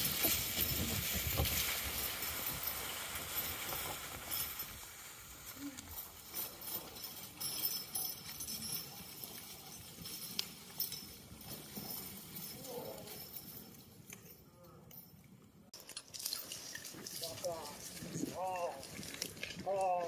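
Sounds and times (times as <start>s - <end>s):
log skidding through snow: 0.0s - 6.3s
hoof steps in snow: 0.0s - 6.6s
clinking harness: 0.0s - 20.0s.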